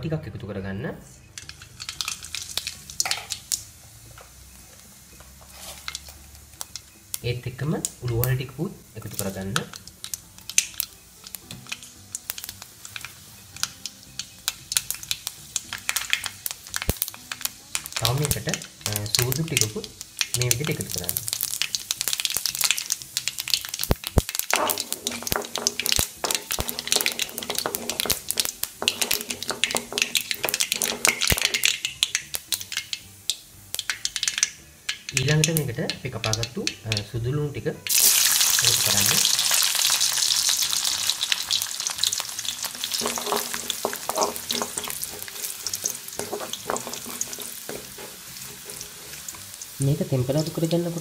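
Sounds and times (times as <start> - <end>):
seeds crackling in hot oil: 1.2 - 51.0
spoon scraping a pan: 5.4 - 6.0, 24.6 - 31.9, 42.8 - 49.8.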